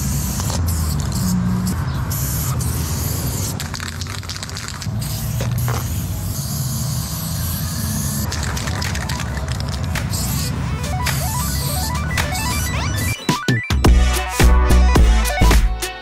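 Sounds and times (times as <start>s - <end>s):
aerosol spray can hissing: 0.0s - 10.6s
background music with bass line: 10.7s - 16.0s.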